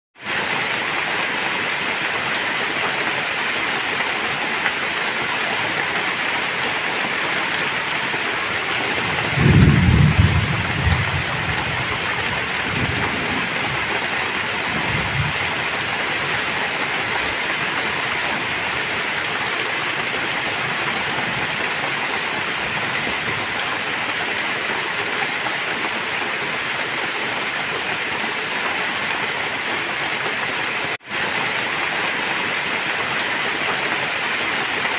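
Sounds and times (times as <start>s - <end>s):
heavy rain: 0.2s - 34.9s
thunder rumbling: 8.9s - 15.8s.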